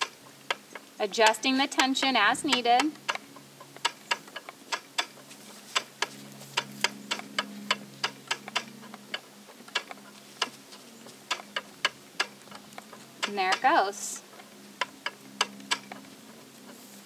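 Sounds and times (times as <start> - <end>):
spinning wheel clicking: 15.0 - 16.0.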